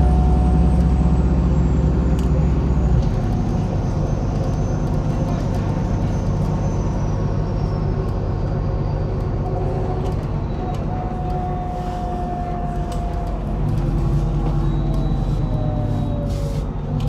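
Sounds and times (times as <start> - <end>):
bus diesel engine hum: 0.0 - 17.0
road noise: 0.0 - 17.0.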